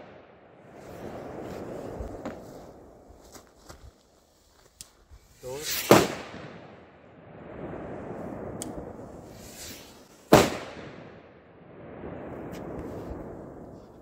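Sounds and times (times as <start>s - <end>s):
firecracker bang: 5.6s - 6.8s, 7.8s - 11.3s.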